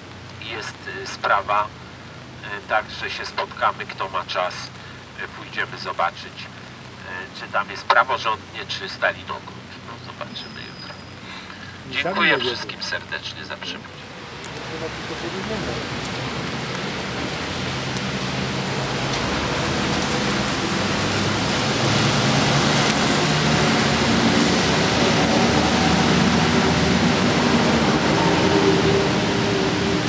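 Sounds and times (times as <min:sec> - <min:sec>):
rain: 0:00.0 - 0:30.0
train rumbling on rails: 0:13.8 - 0:30.0.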